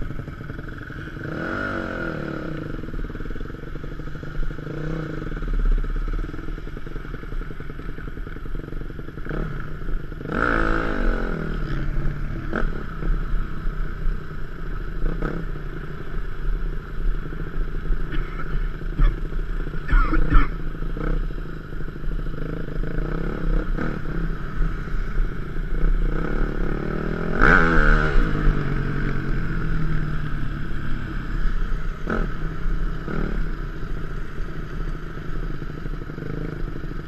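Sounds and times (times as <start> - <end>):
dirt bike engine revving: 0.0 - 3.1, 9.2 - 13.4, 15.0 - 15.6, 17.9 - 33.7.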